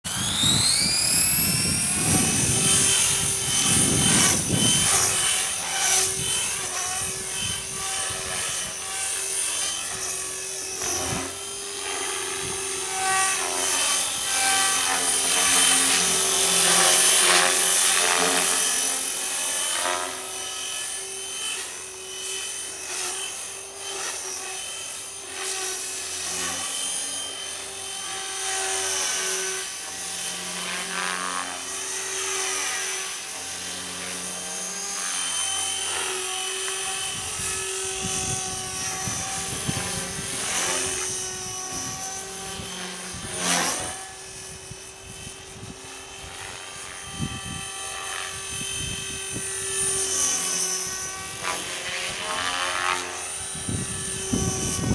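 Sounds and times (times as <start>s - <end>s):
model helicopter motor whine: 0.1s - 54.9s.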